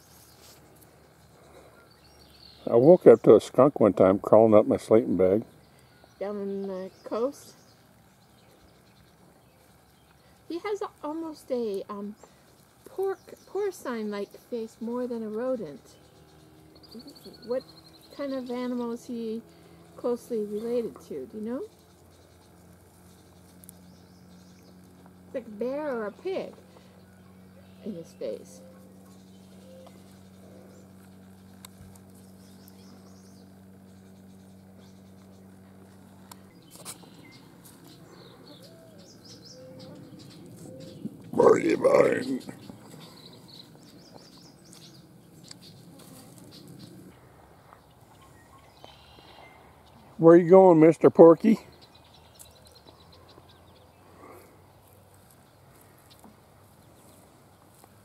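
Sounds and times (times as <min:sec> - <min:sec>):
plants crackling and rustling: 0:00.0 - 0:01.3, 0:27.8 - 0:39.3, 0:40.4 - 0:49.0, 0:54.6 - 0:58.0
faint low hum: 0:00.0 - 0:58.0
animal chewing leaves: 0:16.0 - 0:49.0, 0:51.8 - 0:58.0.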